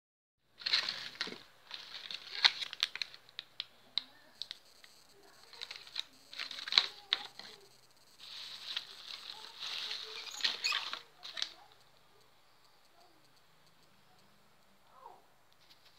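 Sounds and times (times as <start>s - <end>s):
plastic bag crinkling: 0.6s - 11.8s.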